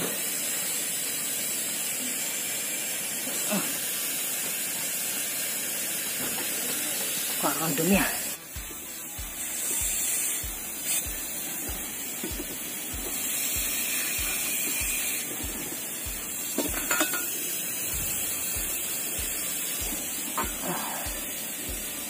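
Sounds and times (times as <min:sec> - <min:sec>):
background music with low beat: 0:07.9 - 0:22.0
metal tools clinking: 0:16.6 - 0:17.3.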